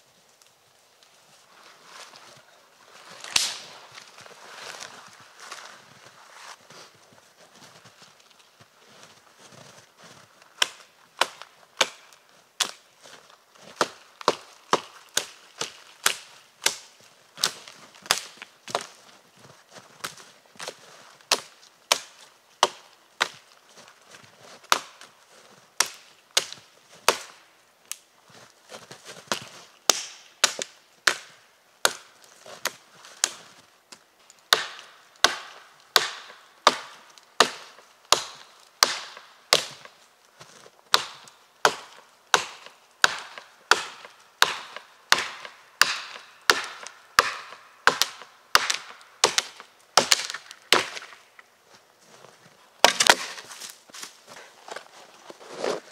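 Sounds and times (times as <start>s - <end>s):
axe chopping wood: 10.6s - 12.8s, 13.6s - 18.9s, 20.6s - 23.4s, 24.7s - 25.1s, 25.8s - 27.4s, 29.3s - 32.1s, 34.5s - 40.0s, 40.9s - 51.2s, 52.8s - 53.7s.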